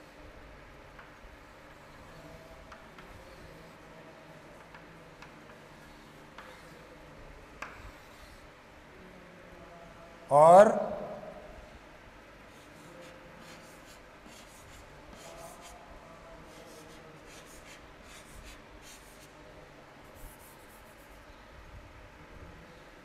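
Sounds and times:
chalk scratching on blackboard: 1.5s - 3.9s, 4.5s - 8.6s, 12.5s - 15.8s, 16.4s - 19.4s, 20.0s - 21.2s.

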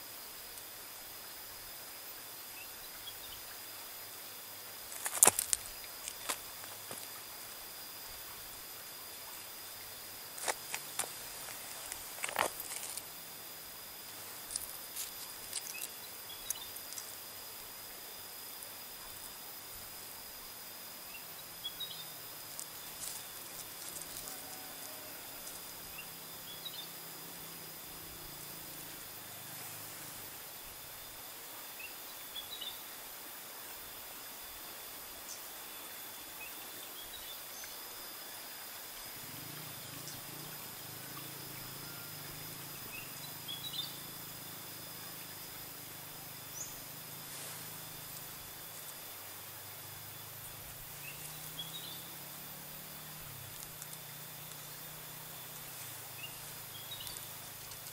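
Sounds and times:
faint high whine: 0.0s - 57.9s
steady high hiss: 0.0s - 57.9s
dry leaves rustling and crackling: 4.9s - 7.1s, 10.4s - 13.1s, 14.2s - 17.1s, 22.5s - 25.6s.

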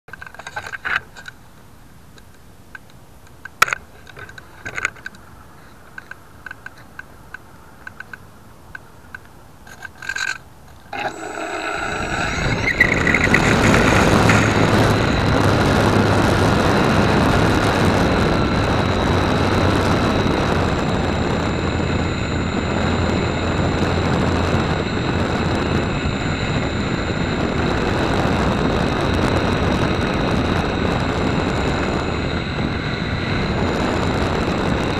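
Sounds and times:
model airplane motor running: 10.1s - 34.9s
wind rush on microphone: 10.9s - 34.9s.

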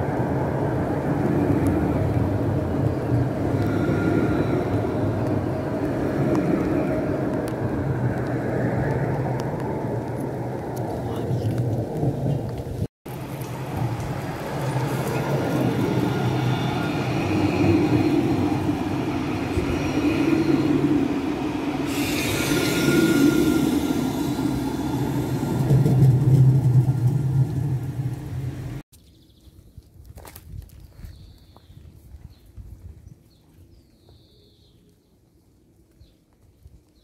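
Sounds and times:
tram rumbling on rails: 0.0s - 28.8s
low hum: 0.1s - 10.8s.

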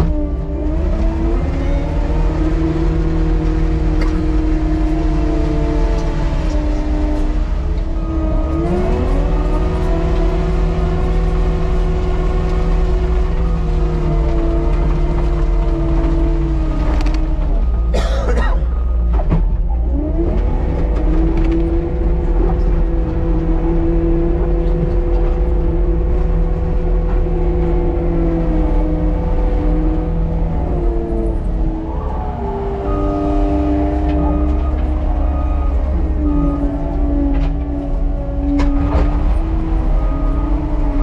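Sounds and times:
diesel loader engine drone: 0.0s - 41.0s
high whine: 20.8s - 41.0s.

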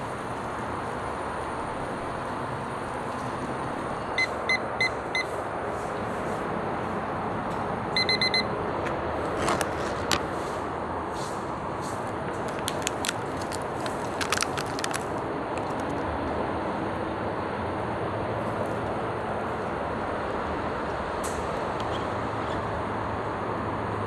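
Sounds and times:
kitchen timer beeping: 8.0s - 8.5s
foil lid peeling crackles: 9.2s - 10.4s, 12.4s - 16.0s.

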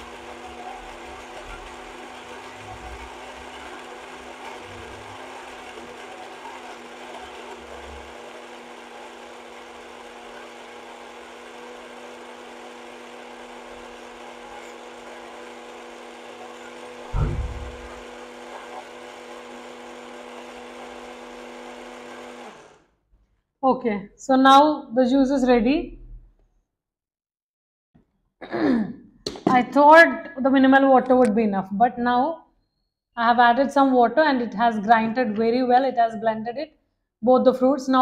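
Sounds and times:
blender motor running: 0.0s - 22.9s
loud thump: 17.1s - 18.0s.

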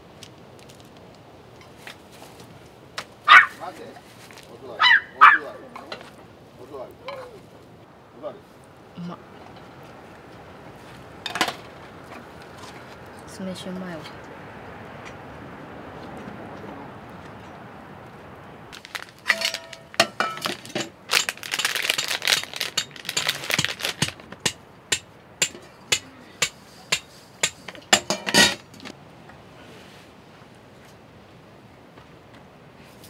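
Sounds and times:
steel plates and chopsticks clinking: 19.3s - 23.4s.

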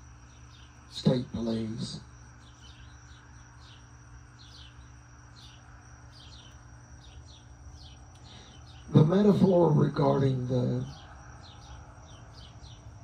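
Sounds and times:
faint high whine: 0.0s - 13.0s
small birds chirping: 0.0s - 13.0s.

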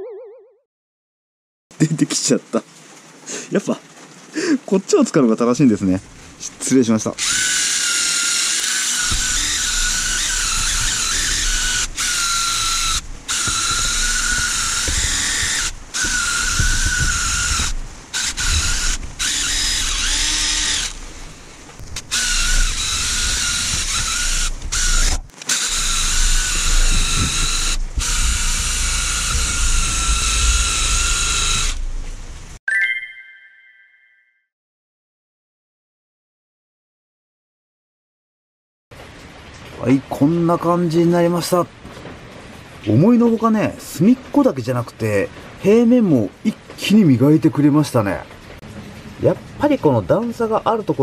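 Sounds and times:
impact driver whining: 7.2s - 31.9s.

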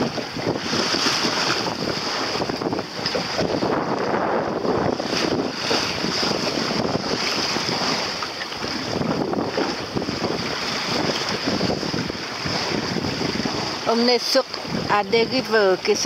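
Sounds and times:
choppy sea splashing: 0.0s - 16.0s
wind buffeting microphone: 0.0s - 16.0s.

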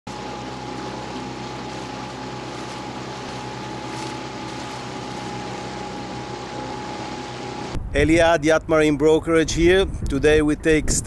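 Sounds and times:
boat engine running: 0.1s - 7.9s
thin whine: 0.1s - 7.9s.

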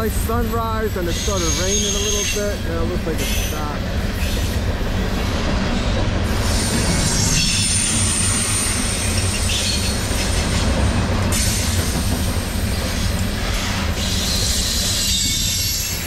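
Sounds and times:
train wheels rumbling on rail: 0.0s - 16.0s
high-pitched wheel squeal: 1.0s - 2.5s.

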